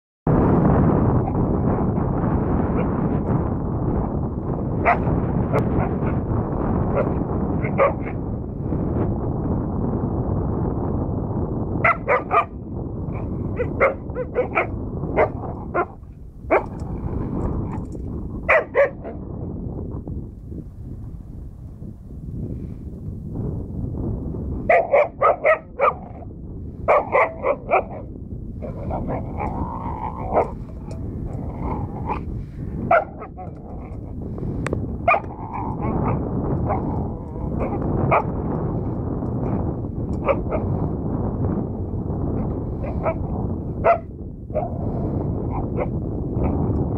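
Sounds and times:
low rumble: 0.3s - 46.9s
dog barking: 4.8s - 6.2s, 6.9s - 8.2s, 11.8s - 12.6s, 13.5s - 16.8s, 18.5s - 19.2s, 24.7s - 26.2s, 26.9s - 28.1s, 28.8s - 30.6s, 32.9s - 33.9s, 35.0s - 38.3s, 40.2s - 40.7s, 42.8s - 44.8s, 45.5s - 45.9s.

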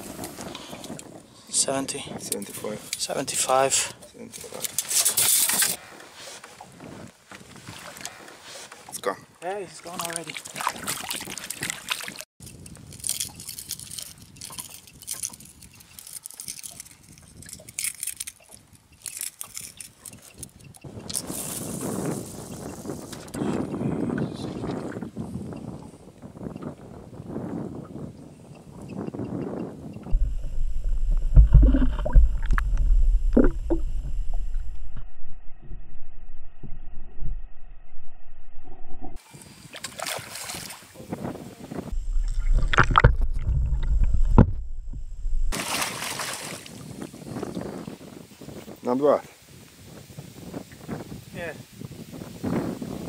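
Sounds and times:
wind rumbling on microphone: 0.0s - 53.0s
microphone handling crackling: 28.9s - 35.0s, 41.8s - 45.6s
muffled underwater rumble: 30.0s - 39.2s, 41.8s - 45.5s
knocks and clicks: 30.1s - 34.7s, 42.2s - 45.5s.

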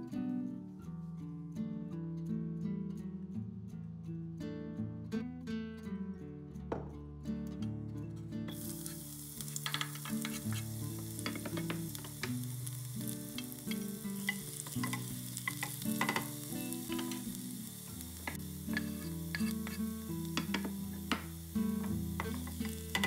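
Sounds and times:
onion sizzling in oil: 8.5s - 23.0s
spoon scraping a pan: 8.5s - 23.0s.

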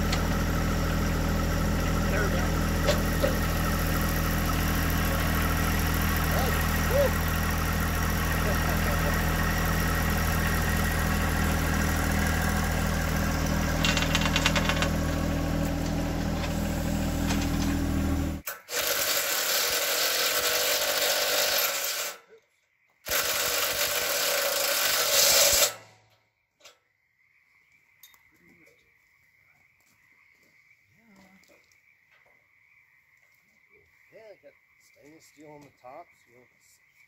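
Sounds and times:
diesel tractor engine idling: 0.0s - 18.5s
rapid metallic rattle: 1.7s - 15.4s.

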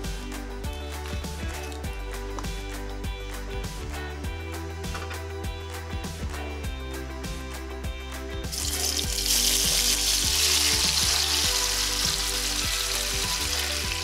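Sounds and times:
background music: 0.0s - 14.0s
food sizzling in hot oil: 8.5s - 14.0s.

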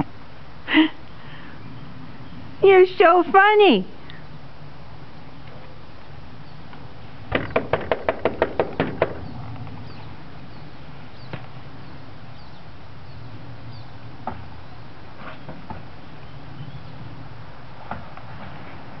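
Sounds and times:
sharp knocks: 7.3s - 9.3s.

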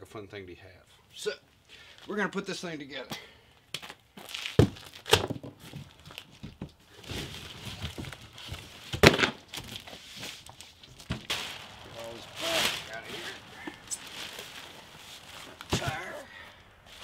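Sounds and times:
packaging crinkling and scraping: 4.2s - 16.2s
knocks and thuds of parts: 7.8s - 9.8s.

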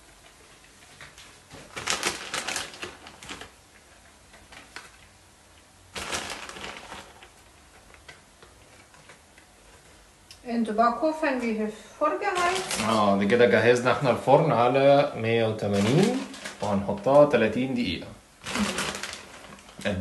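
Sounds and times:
small crackles: 0.0s - 10.4s, 12.3s - 13.4s, 15.5s - 17.4s, 18.4s - 20.0s
plastic bag crinkling: 0.8s - 3.6s, 4.3s - 5.1s, 5.9s - 10.0s, 12.2s - 14.2s, 14.9s - 20.0s.

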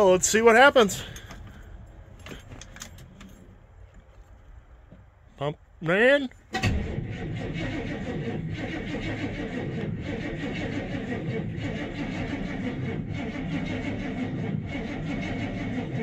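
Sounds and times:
starter cranking engine slowly: 6.7s - 16.0s.

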